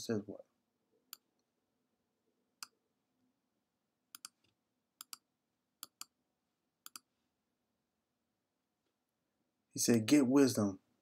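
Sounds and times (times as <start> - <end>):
computer mouse clicking: 4.1 - 6.2, 6.8 - 7.1.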